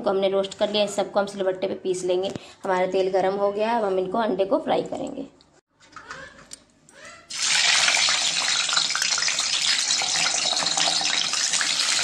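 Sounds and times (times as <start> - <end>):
eggs sizzling in hot oil: 7.3 - 12.0.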